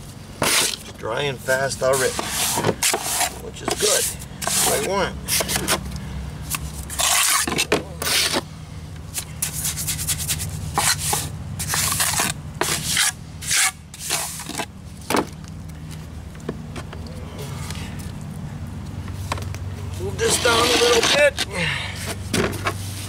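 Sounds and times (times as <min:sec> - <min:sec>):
trowel scraping wet mortar: 0:00.4 - 0:00.9, 0:01.8 - 0:05.8, 0:06.9 - 0:08.4, 0:09.4 - 0:14.6, 0:20.2 - 0:21.5.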